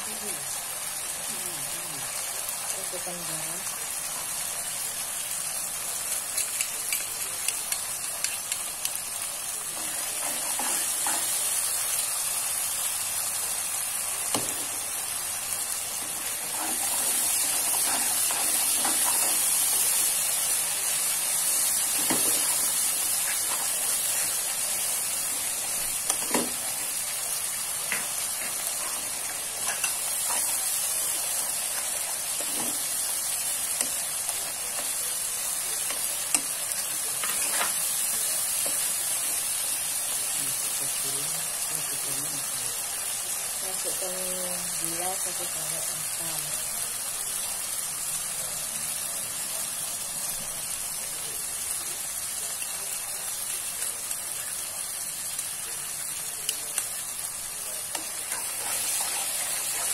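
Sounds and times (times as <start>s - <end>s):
sauce sizzling in a wok: 0.0s - 59.9s
spatula scraping a pan: 58.2s - 59.9s.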